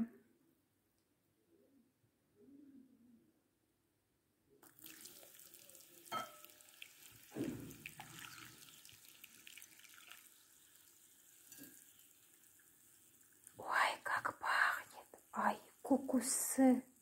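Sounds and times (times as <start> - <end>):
water trickling and splashing: 4.6 - 13.7
ringing glass clink: 6.1 - 6.5.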